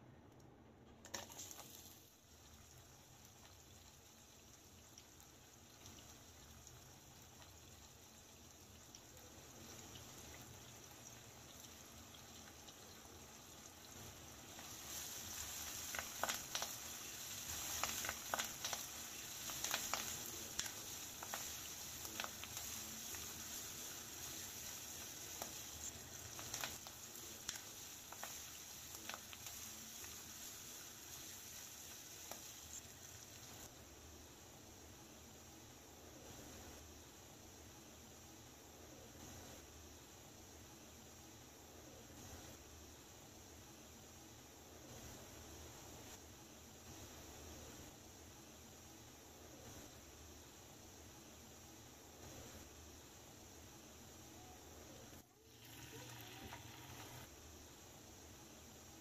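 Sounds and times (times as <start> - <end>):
onion sizzling in oil: 1.0 - 59.0.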